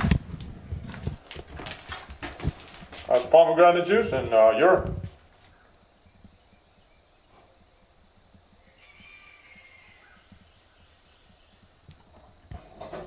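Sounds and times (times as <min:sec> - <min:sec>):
faint insect chirping: 0:03.4 - 0:13.0
faint bird call: 0:05.4 - 0:12.4.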